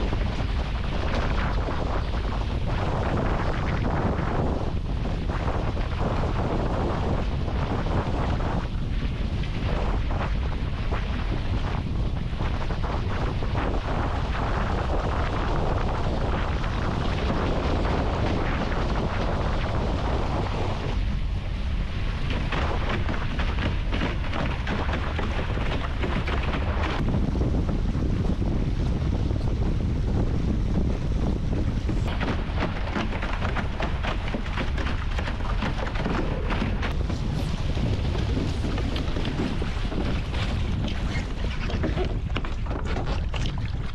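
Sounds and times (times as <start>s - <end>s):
water rushing past hulls: 0.0s - 43.9s
wind buffeting microphone: 0.0s - 43.9s.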